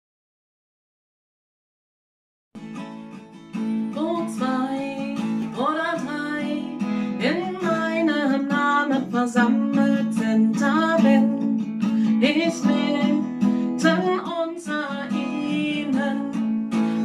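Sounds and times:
acoustic guitar strumming: 2.6s - 17.0s
woman singing: 3.7s - 17.0s.

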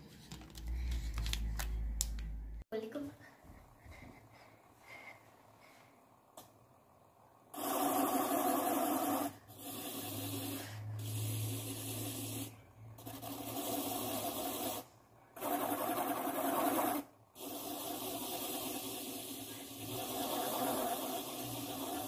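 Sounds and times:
pen scraping spinning cardboard: 7.6s - 12.3s, 13.0s - 14.8s, 15.4s - 22.0s.

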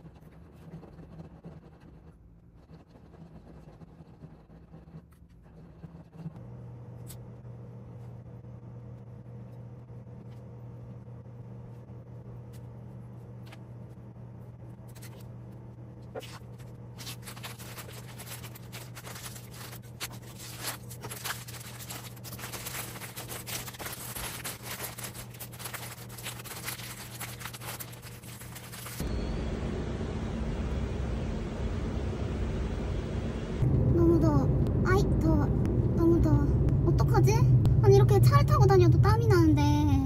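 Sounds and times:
low hum: 0.0s - 40.0s
paper and plastic bag crinkling: 16.2s - 29.0s.

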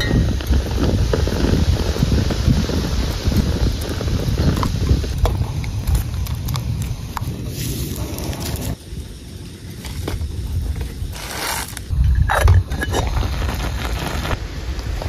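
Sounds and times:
steady low rumble: 0.0s - 15.0s
metal pot and lid scraping: 11.2s - 13.4s.

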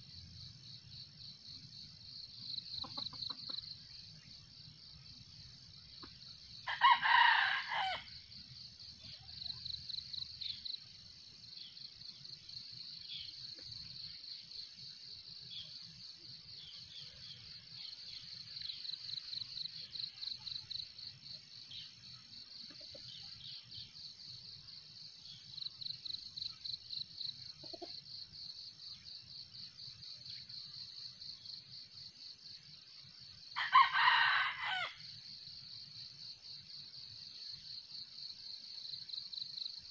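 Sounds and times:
insect trill: 0.0s - 39.9s
rooster crowing: 6.6s - 8.2s, 33.6s - 35.0s.

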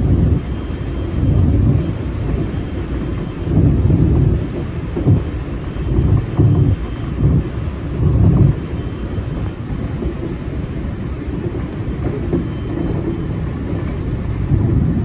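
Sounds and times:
low thuds of train wheels: 0.0s - 15.0s
train rumbling on track: 0.0s - 15.0s.

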